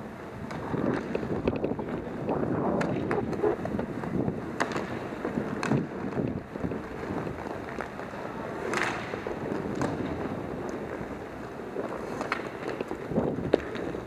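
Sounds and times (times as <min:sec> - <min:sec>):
skate wheels rumbling on rink: 0:00.0 - 0:14.0
sticks and puck clacking: 0:00.4 - 0:14.0.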